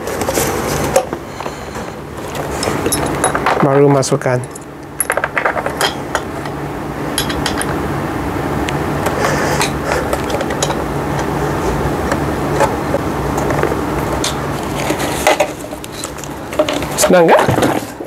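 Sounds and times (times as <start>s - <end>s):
steady background hum: 0.0s - 18.0s.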